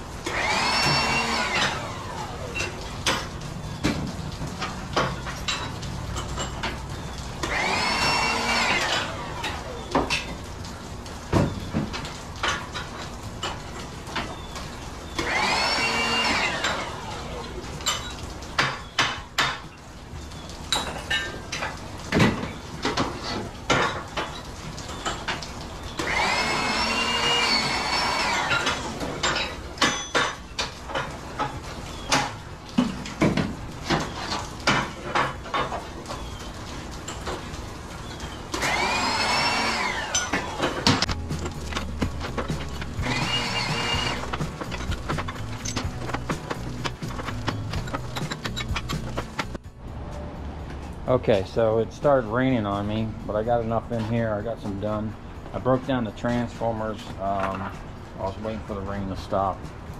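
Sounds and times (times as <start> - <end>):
power tool motor whine: 0.2 - 2.4, 7.4 - 9.4, 15.2 - 17.0, 26.0 - 29.0, 38.5 - 41.0, 42.5 - 46.2
metal parts clanking: 40.1 - 49.6.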